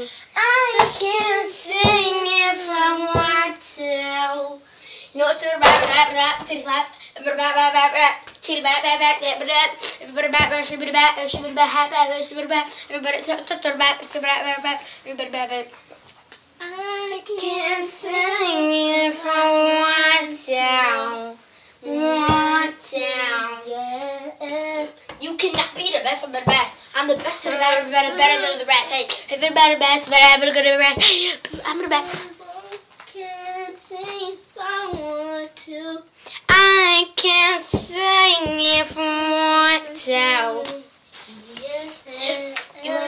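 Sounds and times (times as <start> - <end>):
child singing: 0.0 - 15.7, 16.6 - 43.0
thump: 5.6 - 6.5, 22.3 - 22.5, 26.4 - 26.8.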